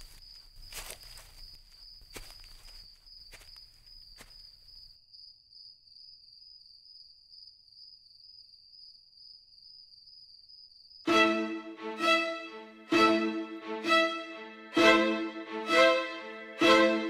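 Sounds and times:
crickets chirring: 0.0s - 11.1s.

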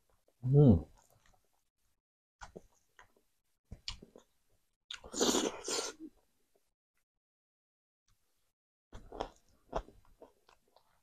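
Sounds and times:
man chewing food: 2.4s - 6.6s, 9.0s - 11.0s.

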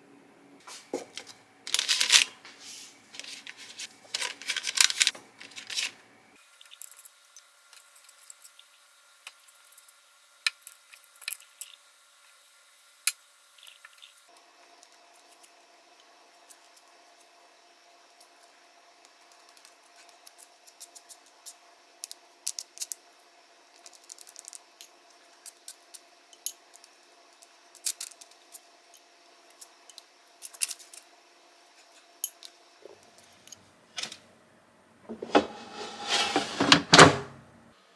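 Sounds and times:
paper crinkling and rustling: 1.0s - 6.0s.

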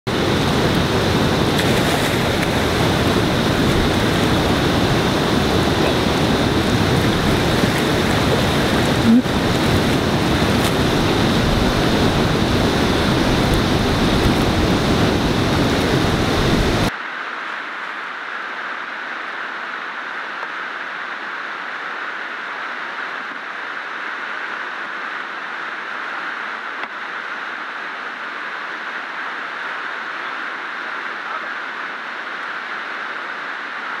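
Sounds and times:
river rapids rushing: 0.1s - 16.9s
wind on microphone: 0.1s - 16.9s.

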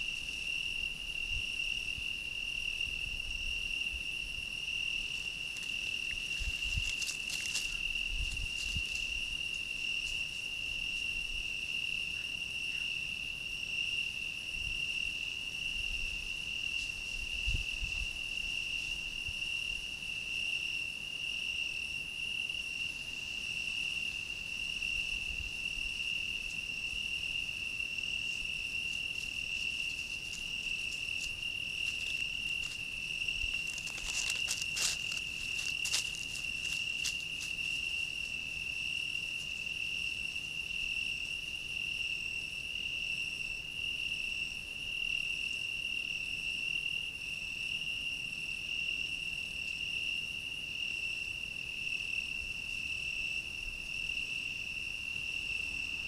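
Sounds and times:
crickets trilling: 0.0s - 56.0s
animal rustling dry leaves: 5.2s - 10.5s, 28.2s - 38.4s.

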